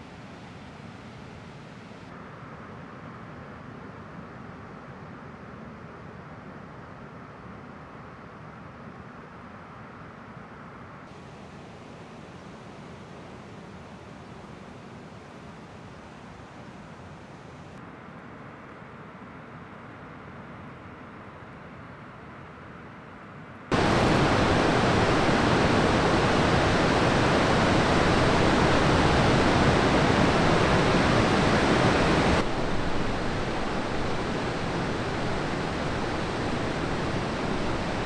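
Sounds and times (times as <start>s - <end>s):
ocean waves breaking: 23.7s - 38.0s.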